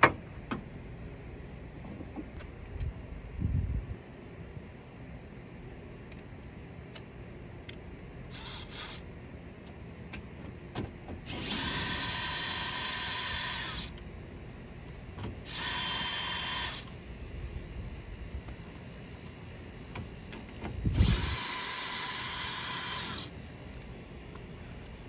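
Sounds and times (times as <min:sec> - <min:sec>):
cordless drill whining: 0:08.3 - 0:09.0, 0:11.3 - 0:14.0, 0:15.4 - 0:17.0, 0:20.9 - 0:23.4.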